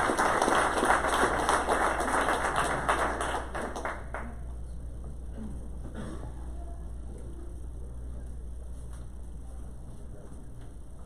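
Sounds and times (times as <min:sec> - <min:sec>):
audience applause: 0:00.0 - 0:04.3.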